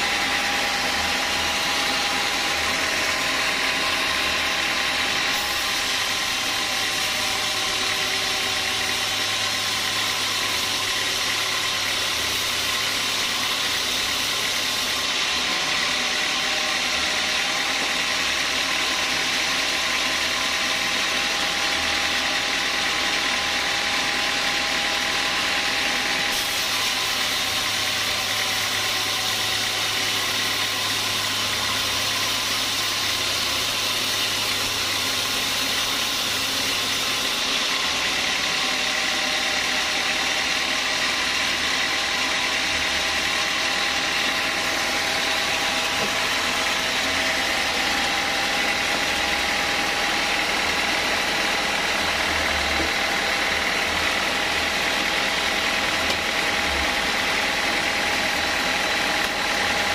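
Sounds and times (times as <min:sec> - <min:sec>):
sawmill machine hum: 0:00.0 - 0:59.9
saw blade hissing through log: 0:04.0 - 0:15.7, 0:26.0 - 0:40.0.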